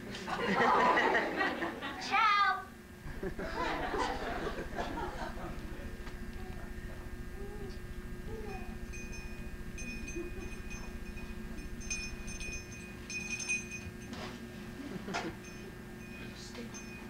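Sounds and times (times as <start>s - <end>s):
bell-like chiming: 7.4s - 14.2s, 15.4s - 17.0s.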